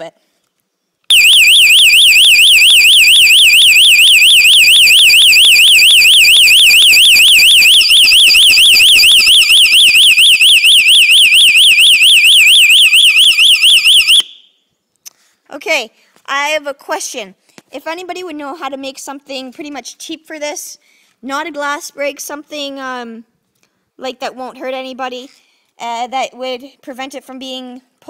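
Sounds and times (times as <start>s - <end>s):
fire alarm horn warbling: 1.1s - 14.5s.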